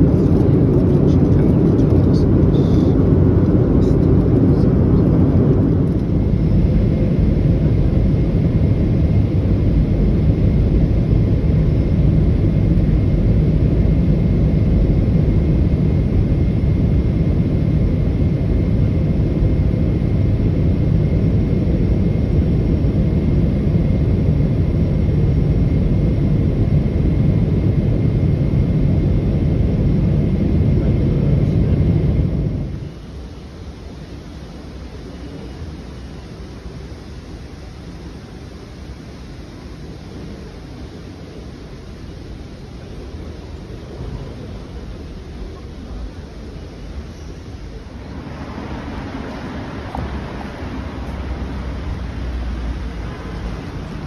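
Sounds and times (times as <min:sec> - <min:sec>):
aircraft cabin engine rumble: 0:00.0 - 0:54.0.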